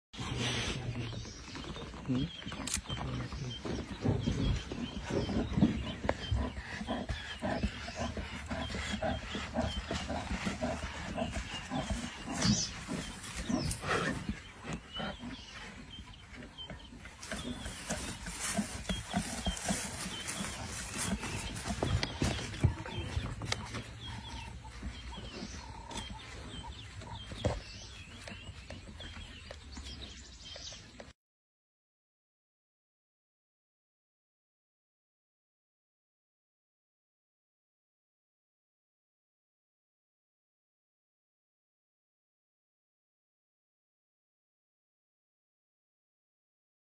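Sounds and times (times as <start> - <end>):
birds chirping: 0.2 - 31.1.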